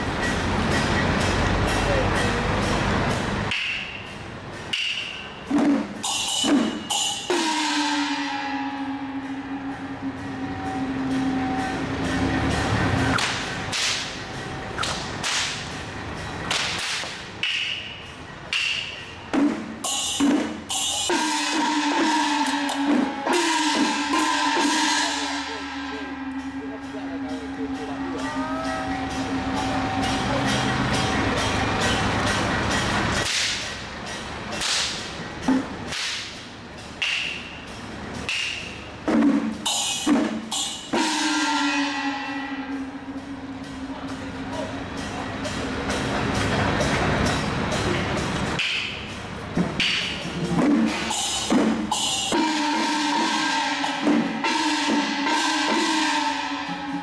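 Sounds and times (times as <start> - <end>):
cymbal strikes: 0.0 - 57.0
drums: 0.0 - 57.0
ringing metal percussion: 0.0 - 57.0
whip cracking: 13.2 - 14.2, 14.8 - 15.7, 16.5 - 17.8, 33.2 - 33.6, 34.6 - 35.1, 35.9 - 36.4.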